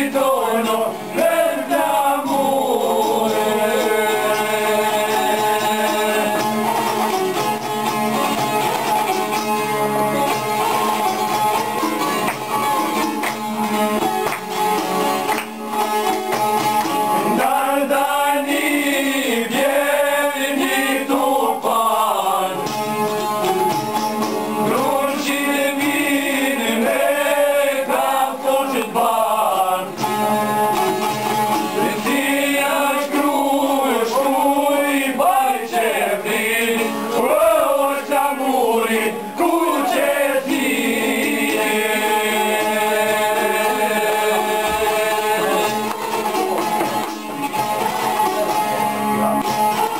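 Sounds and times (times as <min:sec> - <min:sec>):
men singing a folk song: 0:00.0 - 0:07.4, 0:17.1 - 0:23.0, 0:24.5 - 0:30.5, 0:31.6 - 0:46.8
plucked long-necked lutes: 0:00.0 - 0:49.9.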